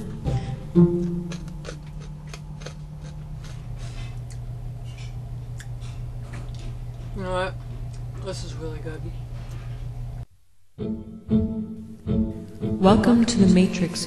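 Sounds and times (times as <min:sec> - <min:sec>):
low steady hum: 0:00.0 - 0:14.0
crab shell cracking: 0:01.3 - 0:03.6.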